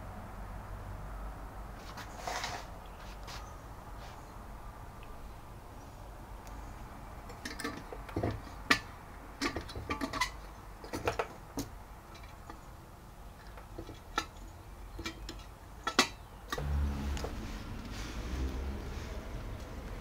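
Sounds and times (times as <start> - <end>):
sharp clicks and light knocks: 7.3 - 12.7, 13.4 - 16.6
low steady hum: 16.4 - 20.0.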